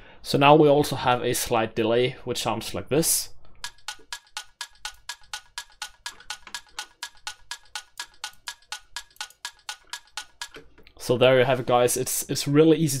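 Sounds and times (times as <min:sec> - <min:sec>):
electronic clock ticking: 0:03.6 - 0:10.8.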